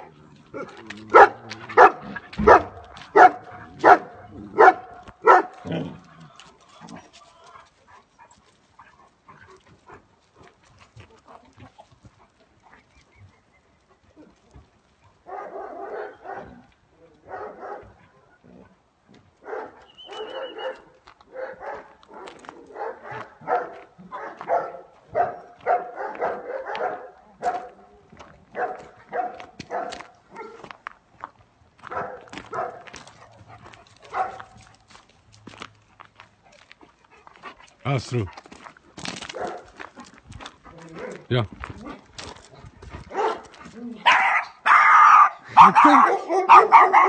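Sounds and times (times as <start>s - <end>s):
dog barking: 1.1s - 5.7s, 15.3s - 16.6s, 17.2s - 18.0s, 19.4s - 27.9s, 28.5s - 30.7s, 31.8s - 34.6s, 39.3s - 39.8s, 43.1s - 47.0s.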